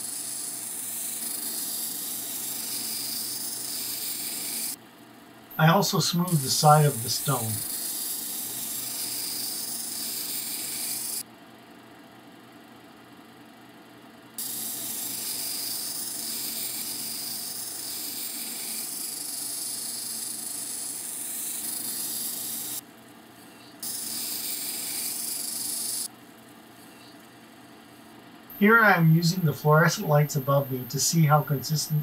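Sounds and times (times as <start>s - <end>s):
stone grinding on wheel hiss: 0.0s - 4.8s, 6.3s - 11.2s, 14.4s - 22.8s, 23.8s - 26.1s.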